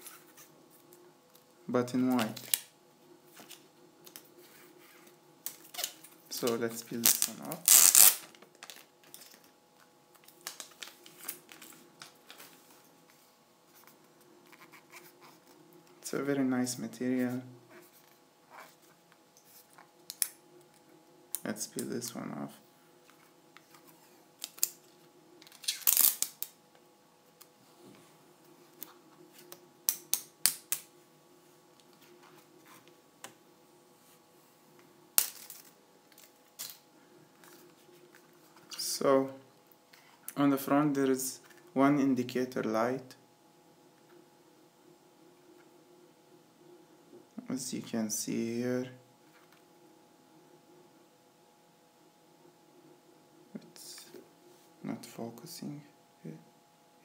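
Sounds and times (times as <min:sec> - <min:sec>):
plastic film rustling: 0:03.3 - 0:13.2, 0:23.6 - 0:26.6.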